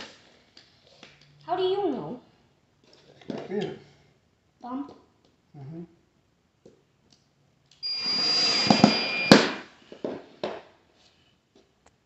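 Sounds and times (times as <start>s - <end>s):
cordless drill whirring: 7.8s - 9.5s.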